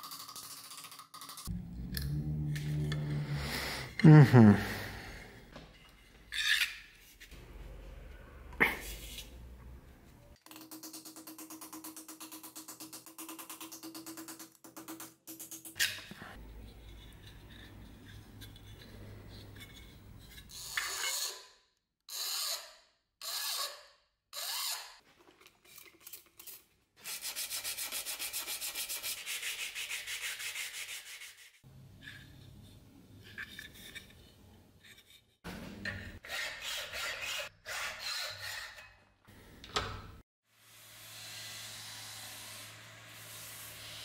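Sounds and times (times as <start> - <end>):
hand file rasping on metal: 36.2 - 38.9.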